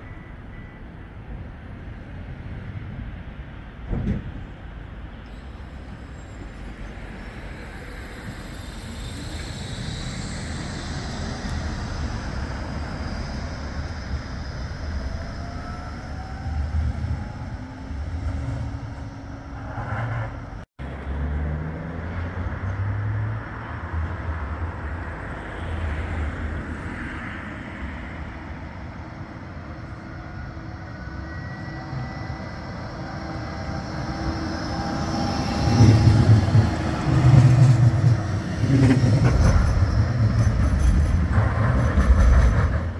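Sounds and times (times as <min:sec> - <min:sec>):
tram rumbling past: 0:00.0 - 0:42.9
electric motor whine: 0:07.3 - 0:14.9.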